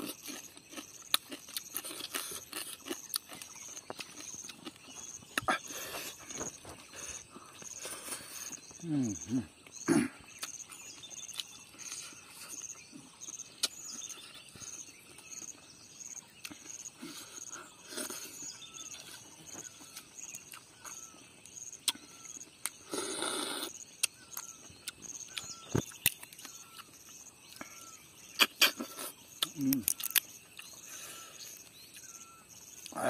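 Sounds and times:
chewing and lip smacks: 0:00.0 - 0:07.0, 0:10.3 - 0:15.6, 0:18.0 - 0:22.8, 0:24.0 - 0:30.8
bird chirping: 0:00.0 - 0:33.0.

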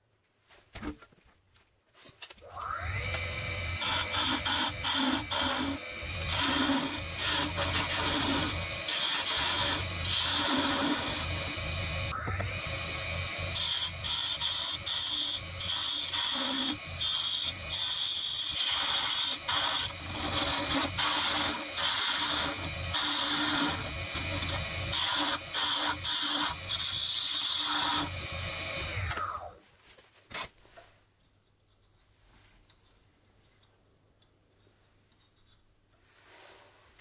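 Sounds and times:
lathe motor hum: 0:02.6 - 0:29.5
lathe tool scraping wood: 0:02.6 - 0:29.5.

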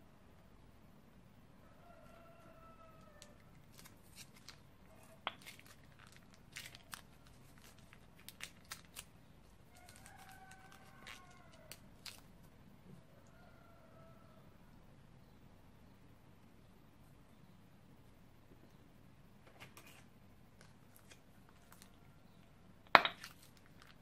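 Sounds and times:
slime squeezed from piping bag: 0:03.6 - 0:12.3.

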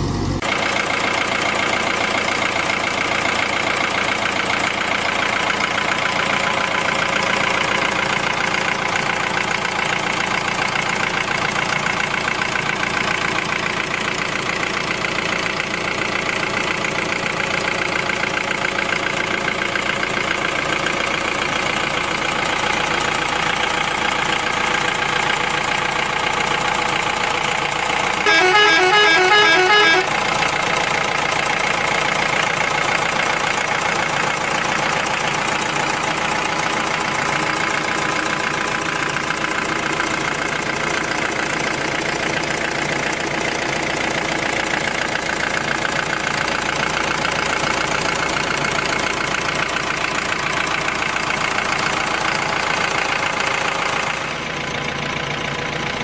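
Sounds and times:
truck engine idling: 0:00.0 - 0:56.0
warbling vehicle horn: 0:28.2 - 0:30.3.

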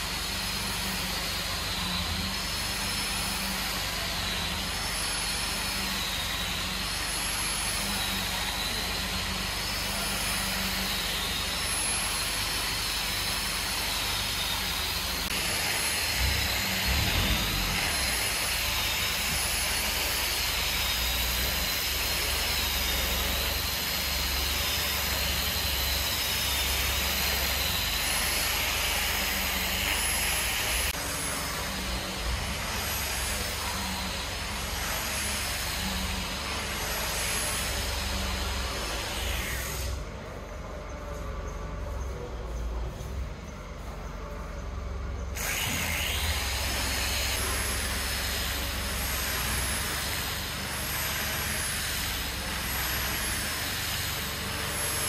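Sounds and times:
machine whine wavering in pitch: 0:00.0 - 0:55.0
low rumble: 0:16.1 - 0:18.2.

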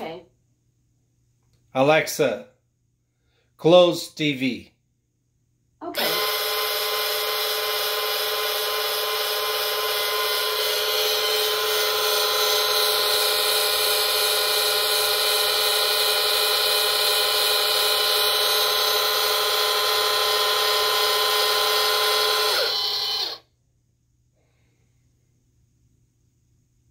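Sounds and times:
linear actuators whining: 0:05.8 - 0:23.4.

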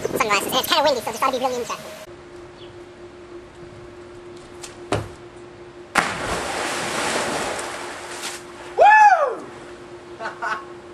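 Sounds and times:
loud splash into pool: 0:05.9 - 0:08.4.

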